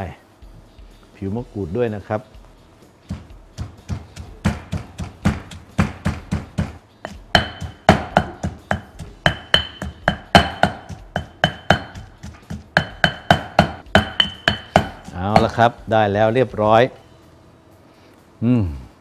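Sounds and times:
stone pestle pounding in mortar: 3.1s - 15.8s.

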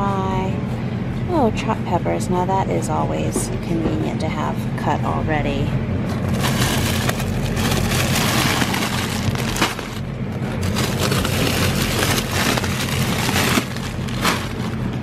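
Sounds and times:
steady low hum: 0.0s - 15.0s
plastic bags crinkling: 6.2s - 15.0s.

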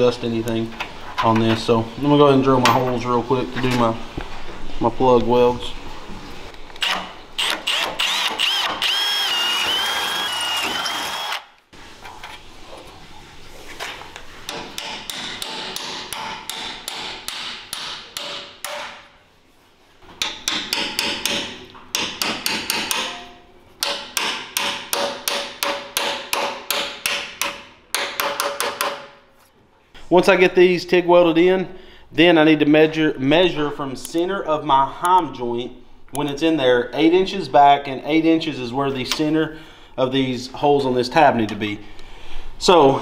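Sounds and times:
drill boring through metal: 7.4s - 11.5s
hammer tapping on metal: 14.5s - 19.0s, 20.2s - 29.0s.

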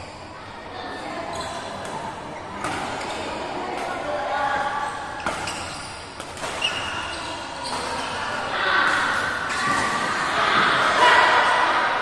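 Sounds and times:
shoe squeak on court: 1.2s - 1.8s, 4.9s - 8.3s.

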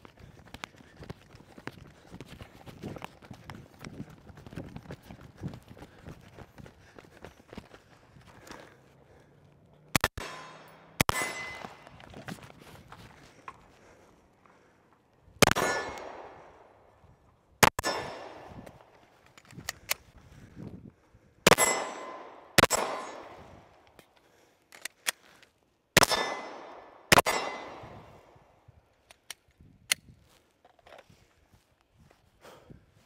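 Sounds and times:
rifle shots with echo: 10.0s - 11.9s, 15.4s - 16.8s, 17.6s - 18.6s, 21.5s - 23.7s, 26.0s - 28.4s.

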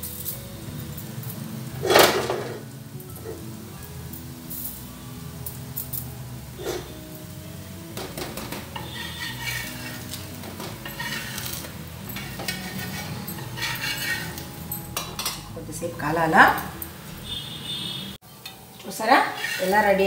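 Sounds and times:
metal spatula scraping iron pan: 6.6s - 7.0s, 8.1s - 15.4s, 18.4s - 20.0s.

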